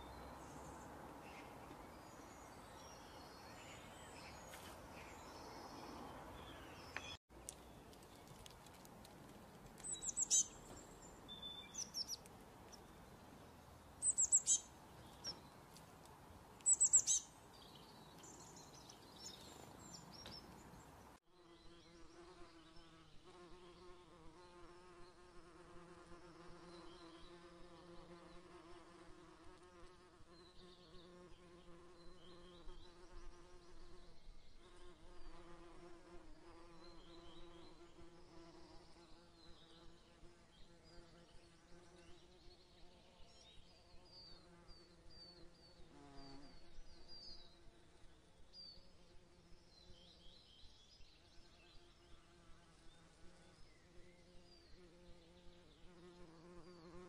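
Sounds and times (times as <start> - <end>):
bird chirps: 9.8 - 15.6, 16.6 - 21.0
insect buzzing hum: 9.8 - 15.8, 16.5 - 57.0.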